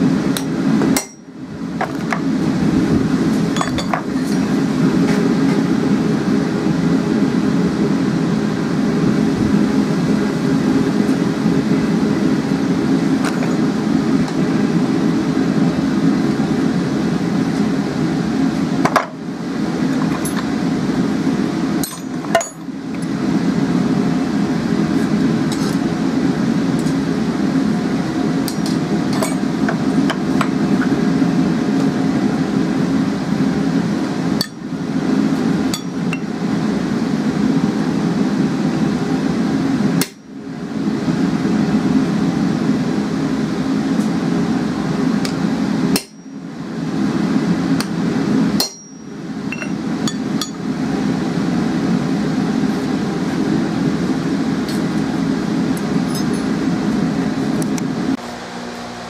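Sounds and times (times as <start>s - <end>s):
gas forge roaring: 0.0s - 59.0s
hammer striking steel on anvil: 0.4s - 1.3s, 21.8s - 22.6s, 35.7s - 36.3s, 45.9s - 46.4s, 48.6s - 50.6s.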